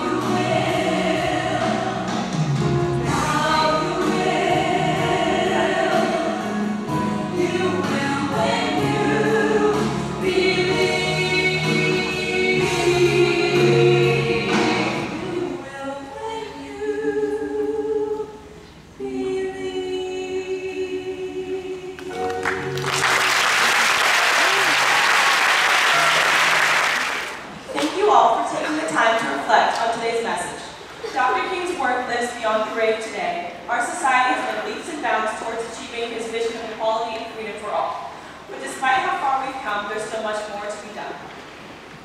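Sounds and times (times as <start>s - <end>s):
two women singing through microphones: 0.0s - 2.2s, 3.0s - 22.2s
audience applause: 22.3s - 27.6s.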